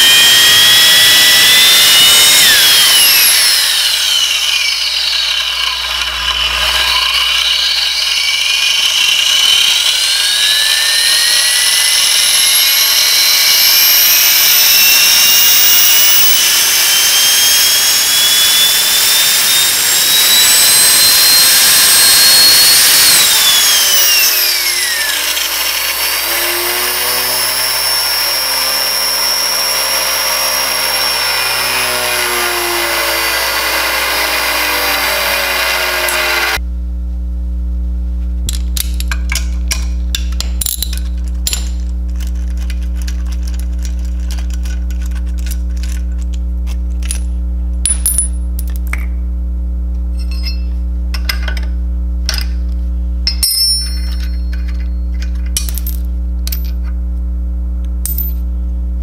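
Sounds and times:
plastic gears whining: 0:00.0 - 0:36.6.

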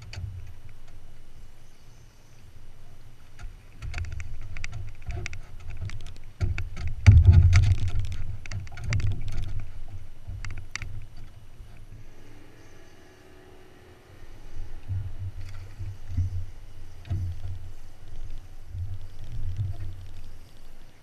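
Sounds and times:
sharp clicks and knocks: 0:00.0 - 0:01.3, 0:03.2 - 0:11.9, 0:14.7 - 0:21.0
steady low rumble: 0:00.0 - 0:21.0
fish splashing and thrashing: 0:02.7 - 0:13.6, 0:14.2 - 0:21.0.

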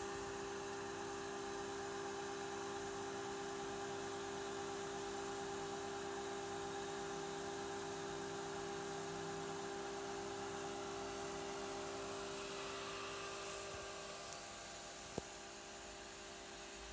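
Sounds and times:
server cooling fans humming: 0:08.2 - 0:16.9.

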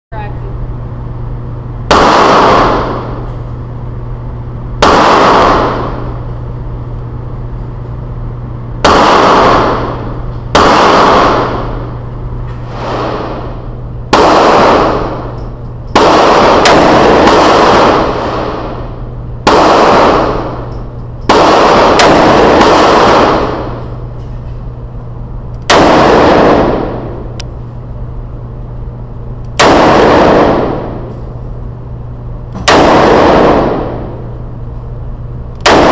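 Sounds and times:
steady low hum: 0:00.1 - 0:35.9
revolver gunshots echoing: 0:01.8 - 0:03.9, 0:04.7 - 0:06.8, 0:08.7 - 0:24.2, 0:25.6 - 0:27.4, 0:29.5 - 0:35.9.

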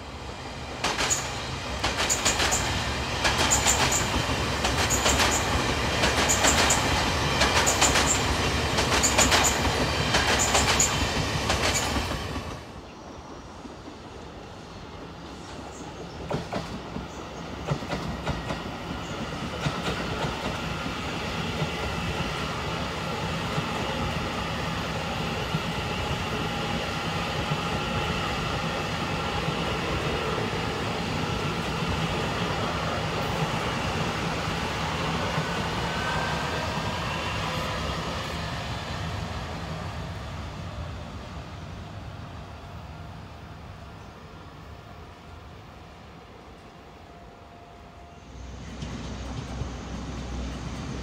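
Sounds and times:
train rolling rumble: 0:00.0 - 0:51.0
wheels clicking over rail joints: 0:00.8 - 0:12.4.

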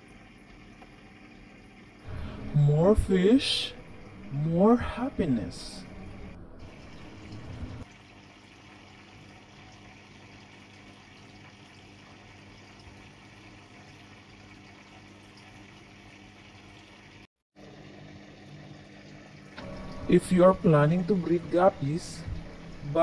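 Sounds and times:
water bubbling and trickling: 0:00.1 - 0:23.0
low electric hum: 0:02.1 - 0:07.8, 0:19.6 - 0:23.0
short low rumble: 0:02.1 - 0:07.8, 0:19.6 - 0:23.0.

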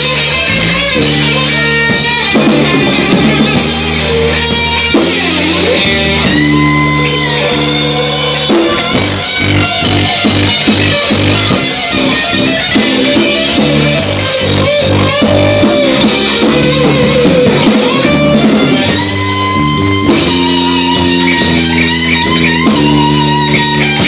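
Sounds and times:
lead guitar bending notes: 0:00.0 - 0:24.0
live rock band playing: 0:00.0 - 0:24.0.

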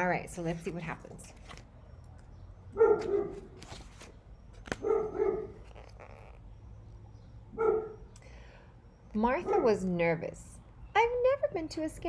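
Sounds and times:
paper rustling: 0:00.4 - 0:01.7, 0:03.0 - 0:06.4
dog barking: 0:02.8 - 0:03.5, 0:04.8 - 0:05.6, 0:07.6 - 0:08.1.

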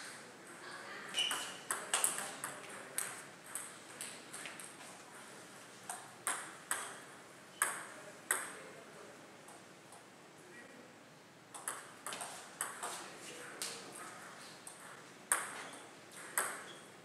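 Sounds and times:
table tennis ball clicks: 0:11.5 - 0:12.9, 0:14.7 - 0:16.8.

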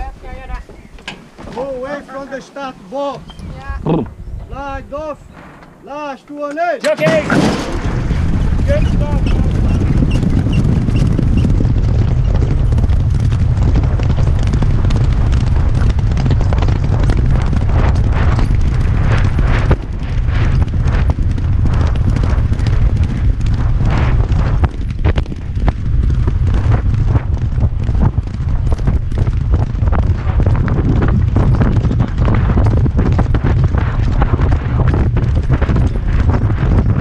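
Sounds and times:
wind rumble on microphone: 0:00.0 - 0:06.2, 0:07.0 - 0:37.0
horse hoofbeats galloping: 0:08.2 - 0:37.0.

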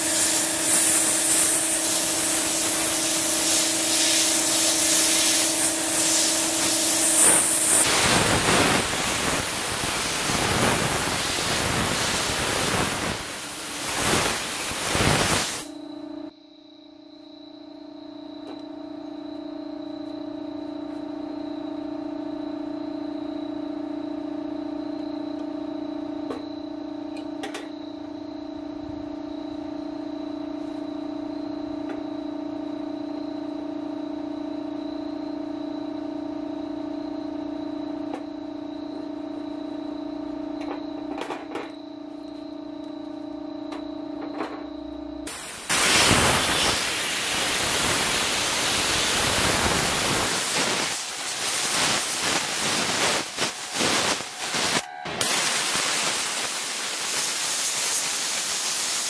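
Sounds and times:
spray gun hissing: 0:00.0 - 0:15.7, 0:45.3 - 0:59.0
steady mechanical hum: 0:00.0 - 0:59.0.

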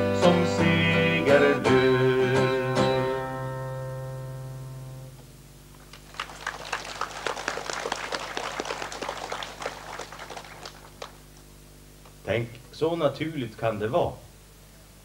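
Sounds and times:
acoustic guitar chords strummed: 0:00.0 - 0:05.7
audience applause: 0:05.8 - 0:11.2.

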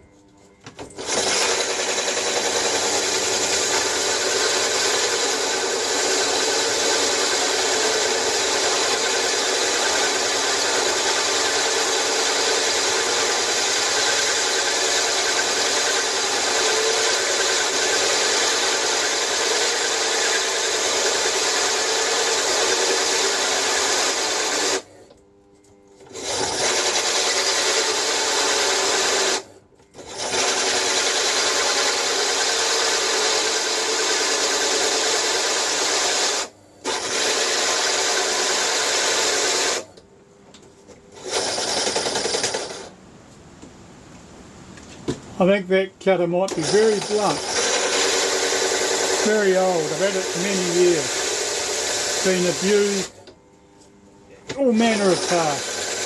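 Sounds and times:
hole saw grinding metal: 0:01.0 - 0:24.9, 0:46.5 - 0:53.3, 0:54.5 - 0:56.0.

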